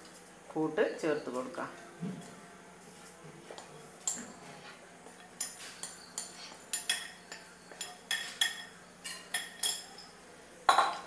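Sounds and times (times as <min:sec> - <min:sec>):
spoon clinking glass bowls: 0:03.6 - 0:04.5, 0:05.2 - 0:11.0.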